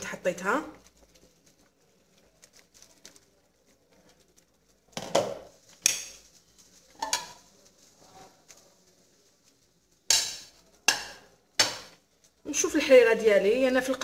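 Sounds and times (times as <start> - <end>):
metal fork knocking on pot: 10.1 - 12.0.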